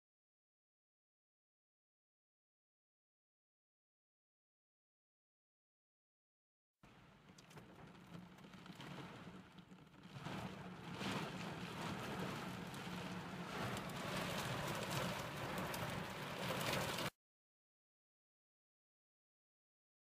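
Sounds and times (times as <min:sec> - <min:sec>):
heavy rain on car roof: 0:06.8 - 0:17.2.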